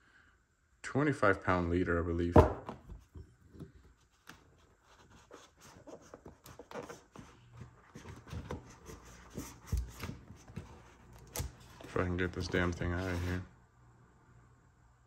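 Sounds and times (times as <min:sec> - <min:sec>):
foam rustling and scraping: 0:04.6 - 0:13.5.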